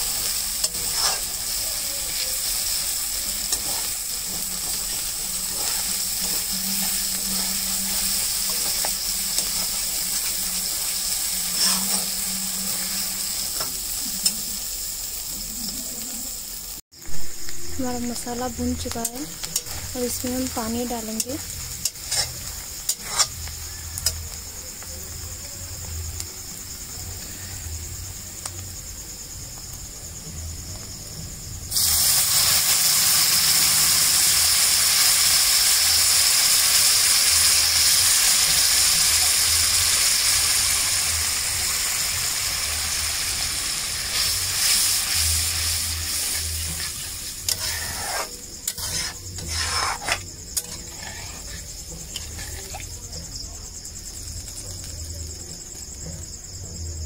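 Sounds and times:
water sizzling in hot oil: 0.0 - 56.0
masala frying quietly: 0.0 - 57.0
metal spatula scraping pan: 0.2 - 14.3, 21.5 - 24.2, 46.0 - 52.8.

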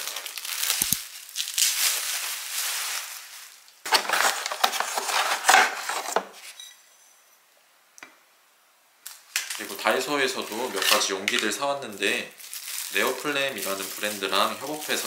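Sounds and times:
cardboard box rustling: 3.9 - 6.4.

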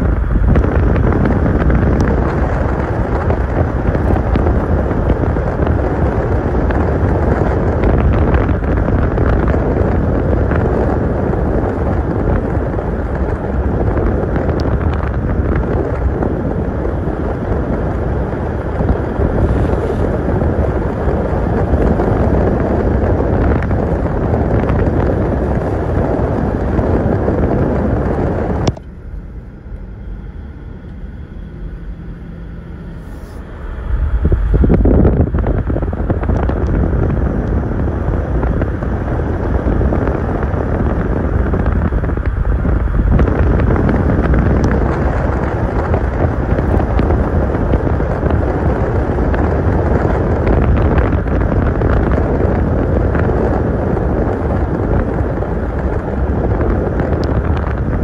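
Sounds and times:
car road and wind noise: 0.0 - 58.0.

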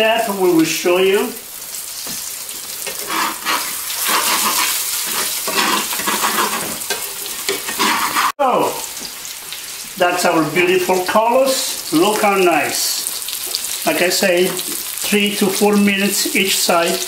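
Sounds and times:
pork chops sizzling in skillet: 0.0 - 17.0
metal tongs scraping pan: 2.8 - 8.4.

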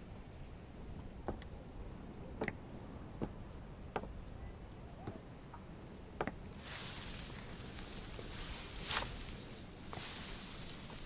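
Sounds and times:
faint footsteps walking: 6.6 - 11.0.

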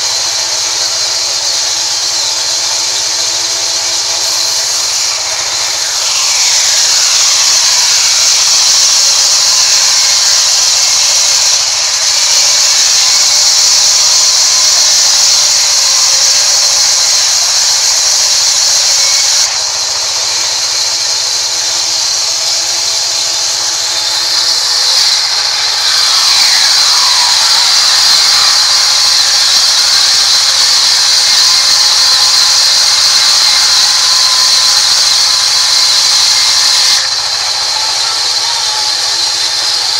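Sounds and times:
band saw cutting wood: 0.0 - 39.9.

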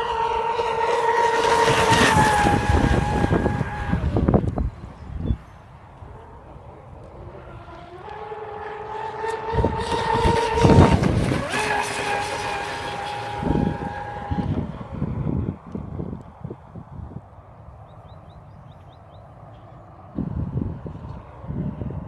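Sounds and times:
model boat motors whining: 0.0 - 16.2.

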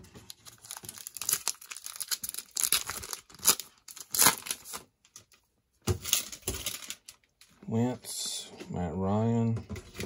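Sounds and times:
plastic wrapper tearing and crinkling: 0.0 - 5.3, 6.0 - 7.3.

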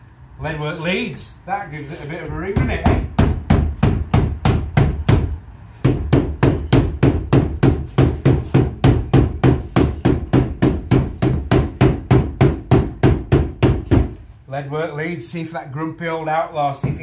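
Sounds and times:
hammer tapping lead sheet: 2.6 - 14.2.

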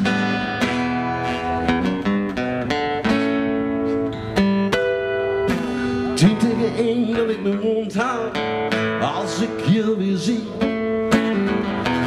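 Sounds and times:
acoustic guitars strumming chords: 0.0 - 12.0.

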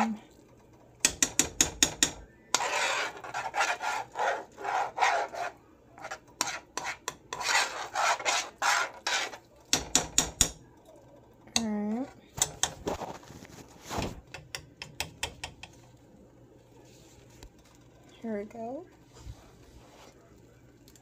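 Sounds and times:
spoon scraping a metal skillet: 1.1 - 10.5.

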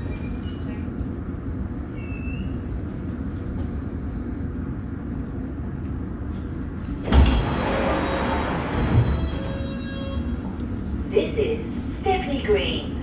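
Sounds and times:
train low rumble: 0.0 - 13.0
train brake squeal: 1.9 - 2.6.

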